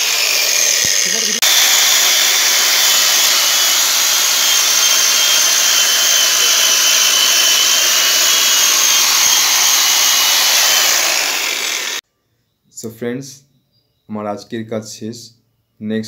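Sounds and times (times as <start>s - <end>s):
chain cutting wood: 0.0s - 12.0s
electric chainsaw motor whine: 0.0s - 12.0s.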